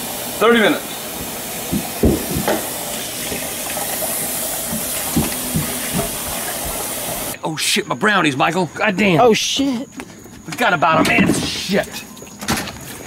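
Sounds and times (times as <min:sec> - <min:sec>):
faucet running into metal sink: 0:00.0 - 0:07.4
pan knocking: 0:01.7 - 0:07.4.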